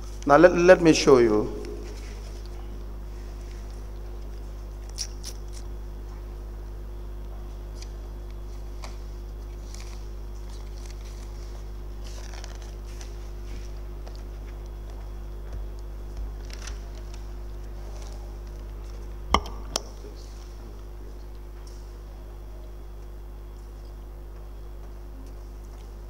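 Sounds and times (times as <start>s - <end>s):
low electrical hum: 0.0s - 26.0s
paper rustling: 8.8s - 14.6s.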